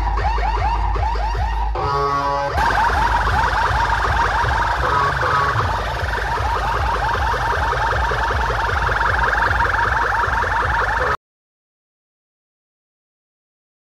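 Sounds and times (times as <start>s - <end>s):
pulsing heavy bass: 0.0s - 11.2s
siren-like whoop: 2.6s - 11.2s.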